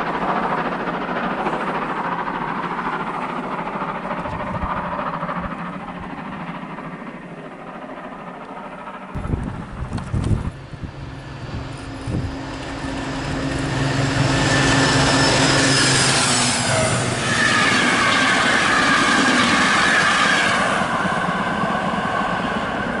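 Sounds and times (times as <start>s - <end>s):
diesel locomotive engine drone: 0.0s - 23.0s
train coaches rolling past: 0.0s - 23.0s
high-pitched wheel whine: 9.1s - 23.0s.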